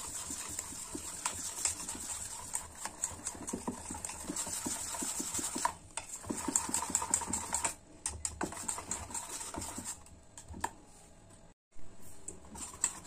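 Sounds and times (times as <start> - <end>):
batter slapping and squelching: 0.0 - 7.8.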